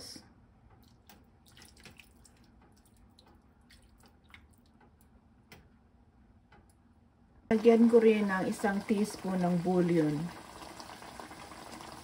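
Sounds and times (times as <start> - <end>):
faint liquid drips: 0.7 - 5.2.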